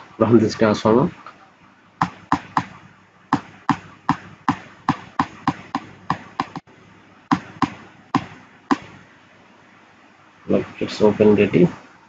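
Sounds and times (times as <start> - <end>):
metal-on-metal tapping: 3.4 - 6.6.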